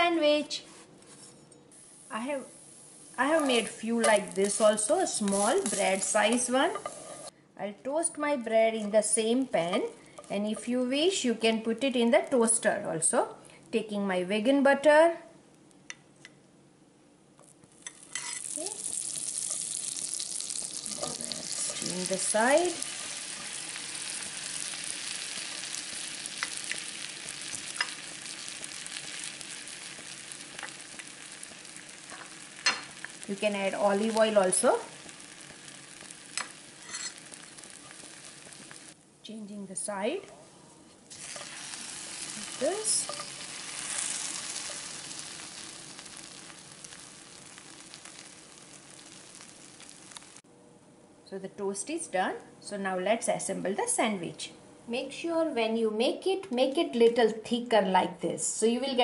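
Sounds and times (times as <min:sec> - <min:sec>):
bread sizzling in frying pan: 0:01.7 - 0:07.3, 0:17.4 - 0:39.0, 0:41.0 - 0:50.4.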